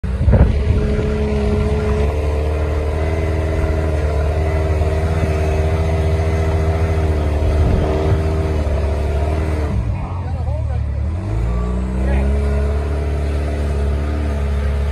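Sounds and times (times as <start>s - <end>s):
buggy engine under load: 0.0s - 14.9s.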